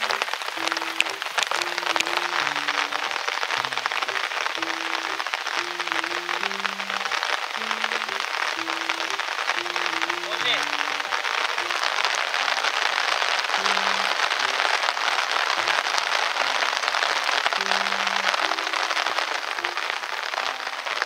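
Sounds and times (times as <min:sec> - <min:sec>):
faint background music: 0:00.0 - 0:12.1
heavy rain falling: 0:00.0 - 0:21.0.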